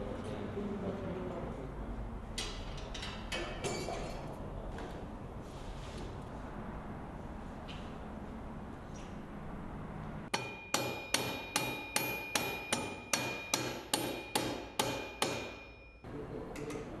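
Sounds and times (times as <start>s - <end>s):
mallet striking metal wheel: 10.3s - 16.0s
metallic ringing: 10.3s - 16.1s.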